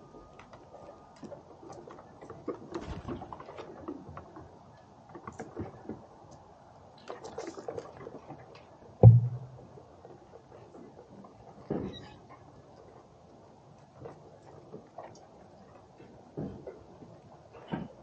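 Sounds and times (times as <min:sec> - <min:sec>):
low thump: 0:09.0 - 0:09.6.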